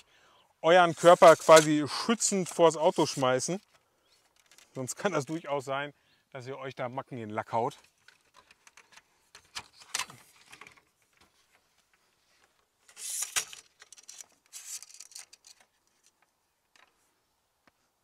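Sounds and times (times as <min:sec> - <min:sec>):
metal leg scraping as it slides: 0:12.9 - 0:13.6.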